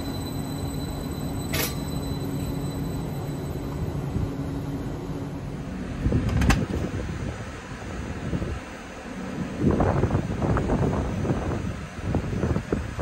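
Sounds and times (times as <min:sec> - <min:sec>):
faint high whine: 0:00.0 - 0:05.9
train equipment humming: 0:00.0 - 0:13.0.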